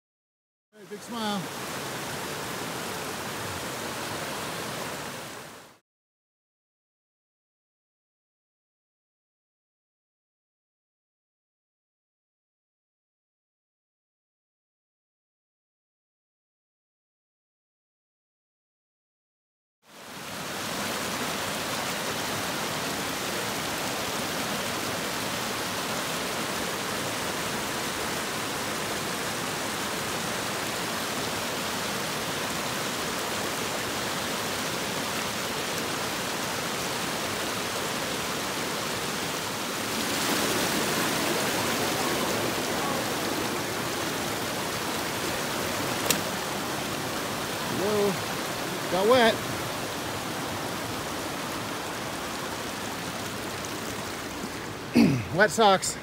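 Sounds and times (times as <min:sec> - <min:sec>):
creek rushing over rocks: 0:00.8 - 0:05.8, 0:19.9 - 0:56.0.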